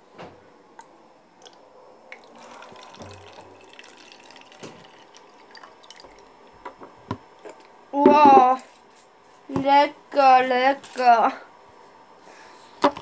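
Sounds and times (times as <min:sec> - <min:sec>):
water trickling into bottle: 0:01.4 - 0:06.5.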